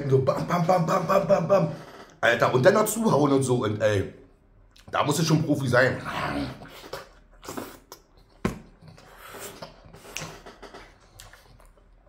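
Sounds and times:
man chewing: 6.4 - 12.0
sharp mouth clicks: 6.8 - 11.8.

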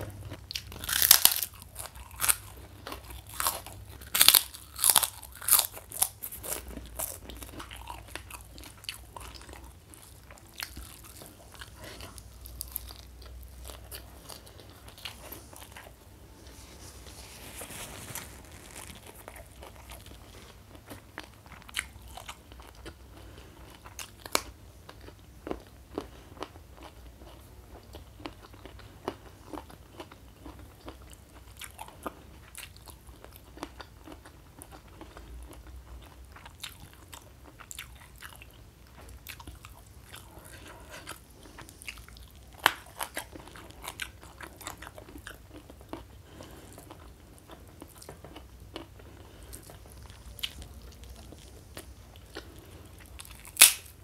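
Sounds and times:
person chewing crunchy food: 0.0 - 54.0.

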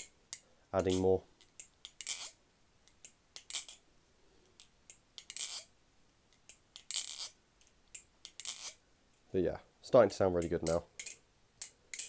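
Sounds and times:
butterfly knife clattering: 10.4 - 12.0.

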